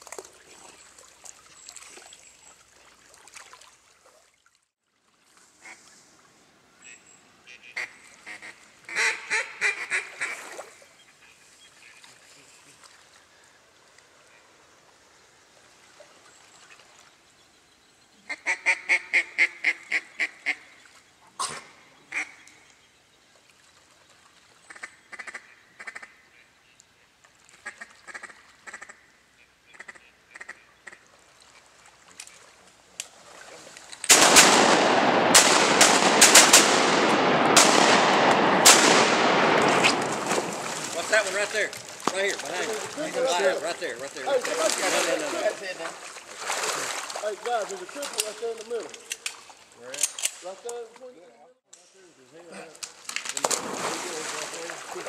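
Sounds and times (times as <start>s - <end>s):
duck quacks: 6.8s - 10.4s, 18.3s - 20.7s, 29.7s - 31.0s
rapid shotgun fire: 34.1s - 40.8s.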